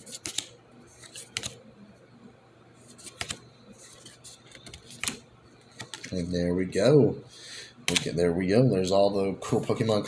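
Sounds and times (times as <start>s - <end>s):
cards rustling: 0.0s - 1.6s, 2.8s - 6.3s.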